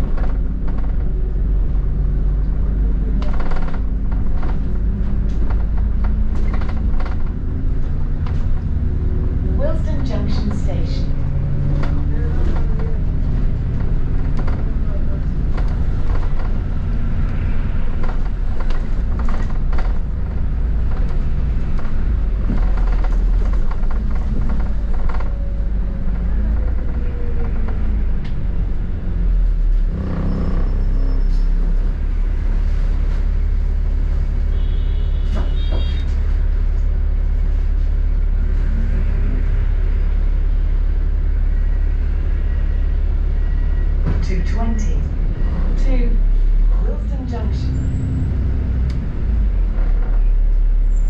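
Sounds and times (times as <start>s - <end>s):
bus engine and road rumble: 0.0s - 51.0s
small rattles and clicks: 11.6s - 28.4s.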